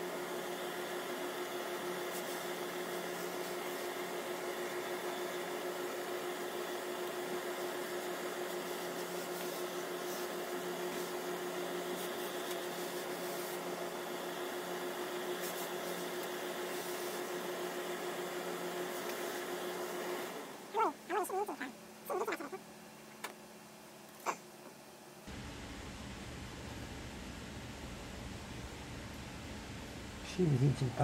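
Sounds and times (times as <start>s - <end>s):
pressing equipment hum: 24.1s - 31.0s.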